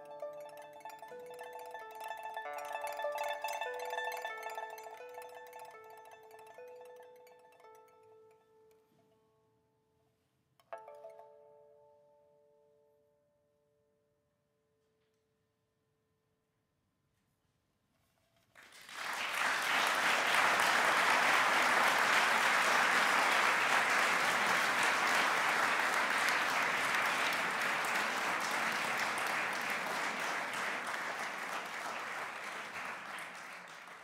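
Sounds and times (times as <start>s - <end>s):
audience applauding: 18.6s - 34.0s.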